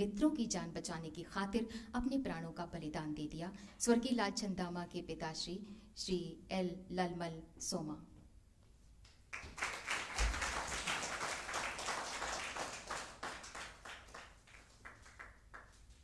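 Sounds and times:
audience applauding: 9.3s - 16.0s.

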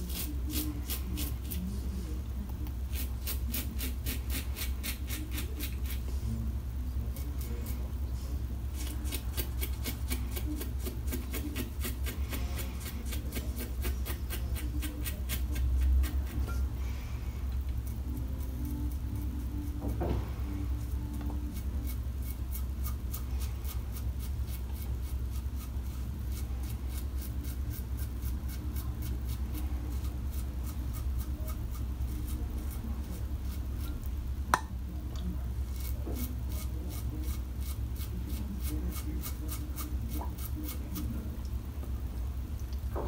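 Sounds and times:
low room hum: 0.0s - 43.0s
razor scraping stubble: 2.8s - 6.1s, 8.7s - 16.5s, 20.8s - 34.1s, 35.6s - 41.1s.

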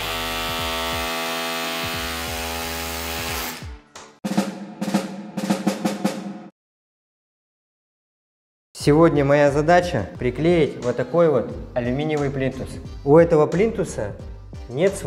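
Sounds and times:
drum-heavy music: 3.6s - 6.5s, 8.8s - 15.0s.

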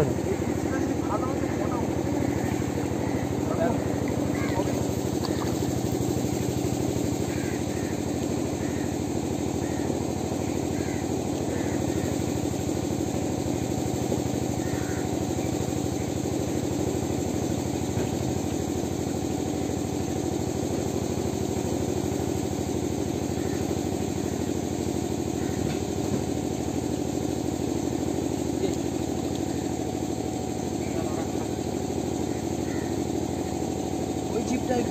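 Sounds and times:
small engine running steadily: 0.0s - 34.9s.

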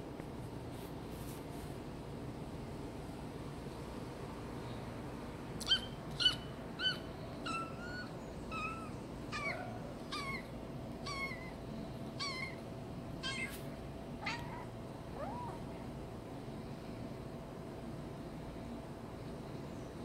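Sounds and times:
kitten mewing: 12.2s - 12.6s, 13.2s - 13.6s, 14.2s - 15.7s.

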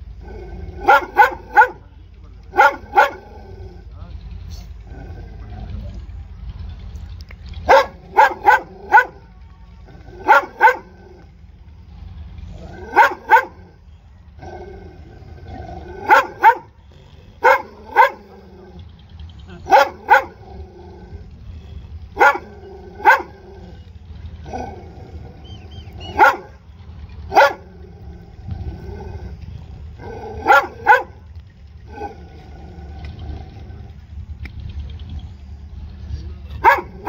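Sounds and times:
dog barking: 0.8s - 1.9s, 2.5s - 3.2s, 7.7s - 9.3s, 10.2s - 10.9s, 12.9s - 13.7s, 16.0s - 16.7s, 17.4s - 18.3s, 19.6s - 20.4s, 22.1s - 23.4s, 26.0s - 26.6s, 27.3s - 27.7s, 30.4s - 31.2s, 36.6s - 37.0s.

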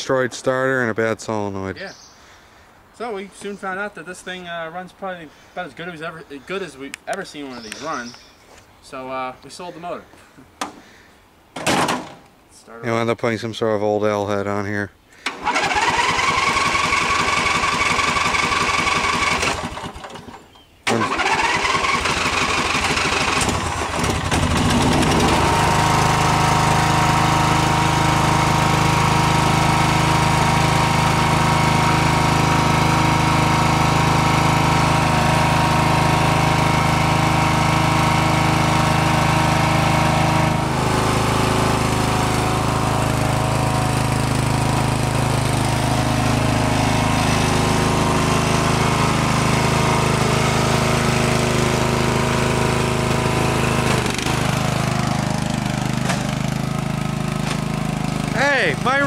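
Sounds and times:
electric starter cranking engine: 15.2s - 59.0s
riding mower engine running: 15.2s - 59.0s.

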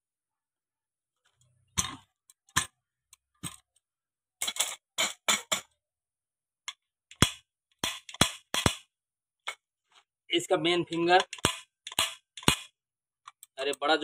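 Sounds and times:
metal parts clinking and knocking: 4.4s - 5.8s, 6.6s - 8.8s, 11.0s - 13.5s.

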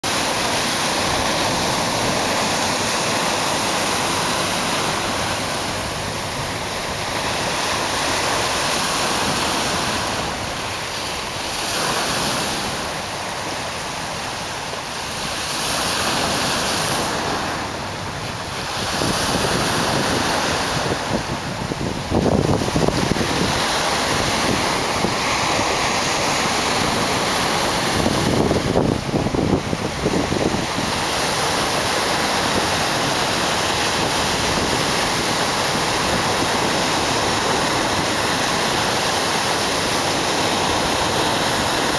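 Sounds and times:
waves breaking over rocks: 0.0s - 41.9s
wind buffeting microphone: 16.1s - 41.9s.

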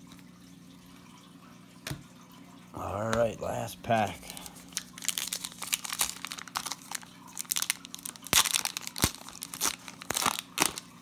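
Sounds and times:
wrapper crinkling and tearing: 4.2s - 11.0s.

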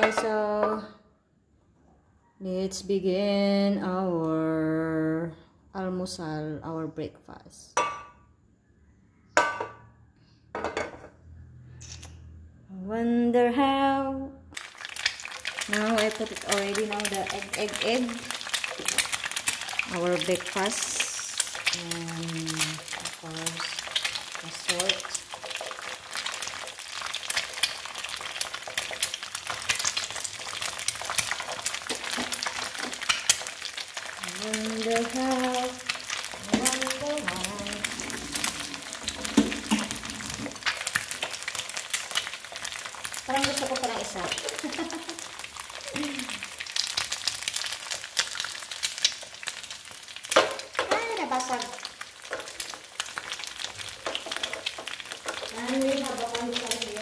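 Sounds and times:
pan knocking on burner grate: 9.4s - 9.8s
egg sizzling in a frying pan: 14.5s - 57.0s
oil crackling and popping: 14.6s - 57.0s.

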